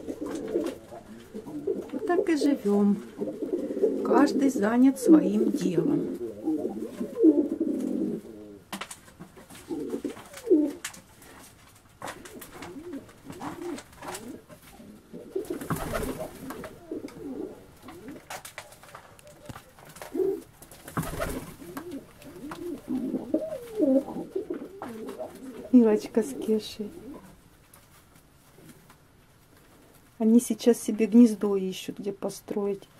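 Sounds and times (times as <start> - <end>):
pigeons cooing: 0.0 - 8.7, 9.4 - 10.9, 12.1 - 27.4.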